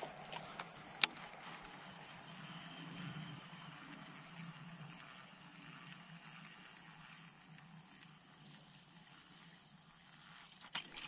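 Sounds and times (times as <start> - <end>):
steady high-pitched drone: 0.0 - 10.6.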